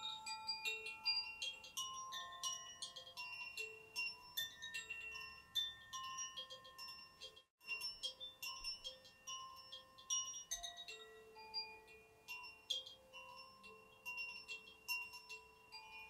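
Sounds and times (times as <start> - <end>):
chimes ringing: 0.0 - 16.0.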